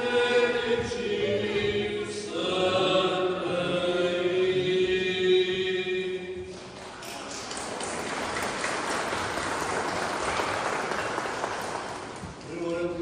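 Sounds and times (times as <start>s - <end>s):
choir singing slow chant: 0.0s - 6.4s.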